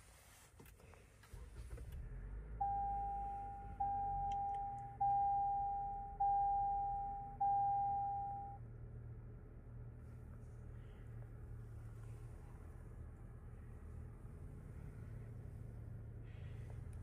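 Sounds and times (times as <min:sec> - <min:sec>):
car engine rumble and road noise: 0:00.0 - 0:17.0
car warning chime: 0:02.6 - 0:08.6.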